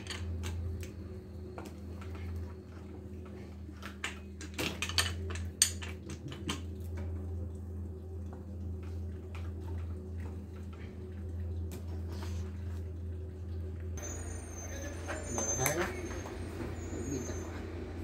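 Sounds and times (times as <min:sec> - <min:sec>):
steady low hum: 0:00.0 - 0:18.0
metal tools clinking on bicycle: 0:03.9 - 0:06.5.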